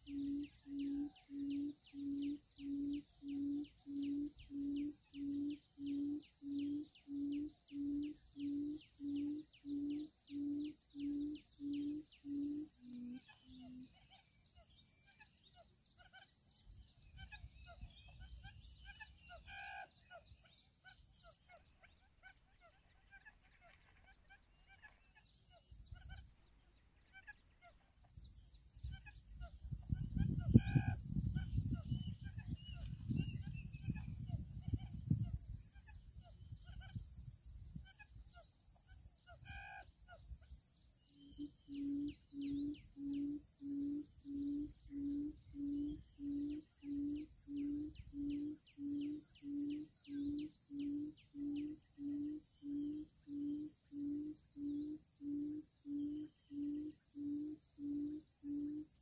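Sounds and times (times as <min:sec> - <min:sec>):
bird low booming hoots: 0:00.0 - 0:15.6, 0:28.8 - 0:37.1, 0:41.1 - 0:58.9.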